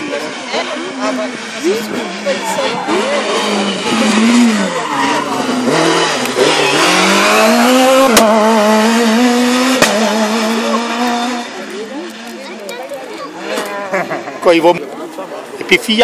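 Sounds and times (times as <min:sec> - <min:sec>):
rally car engine revving: 0:00.0 - 0:15.7.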